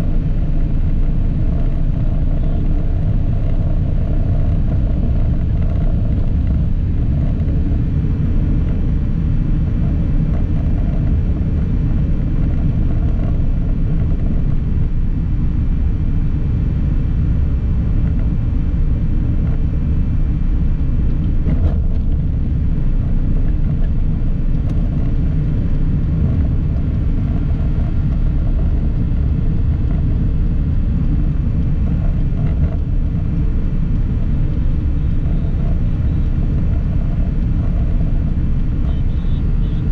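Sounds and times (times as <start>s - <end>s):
vehicle engine and road noise: 0.0s - 39.9s.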